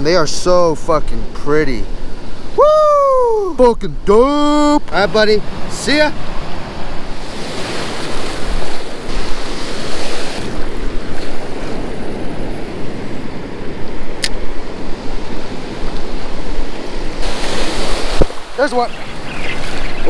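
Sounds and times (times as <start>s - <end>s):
ocean surf breaking: 0.0s - 20.0s
wind buffeting microphone: 0.0s - 20.0s
short sharp click: 14.2s - 14.4s.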